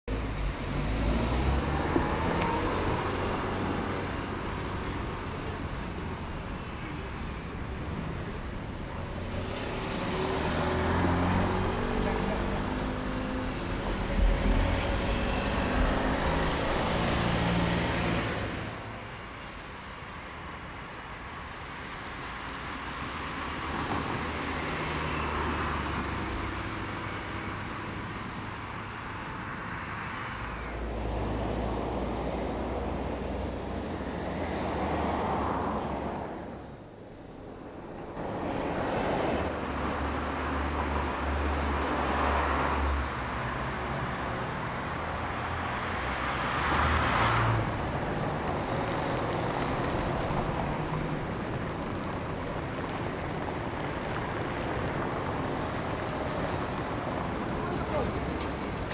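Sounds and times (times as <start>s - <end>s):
tyre noise on road: 0.1s - 58.9s
small car engine driving by: 9.4s - 18.8s.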